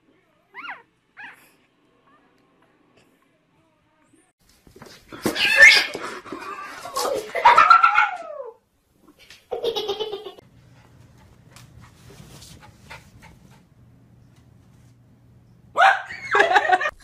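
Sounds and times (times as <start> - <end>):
kitten yowling: 5.4 - 5.9
faint low hum: 7.5 - 17.0.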